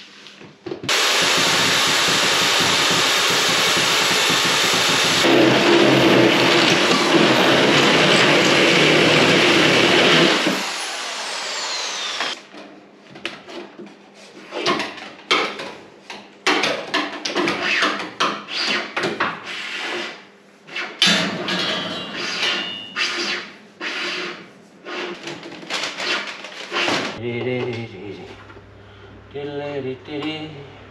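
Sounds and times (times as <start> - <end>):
electric drill boring into wall: 0.9 - 12.4.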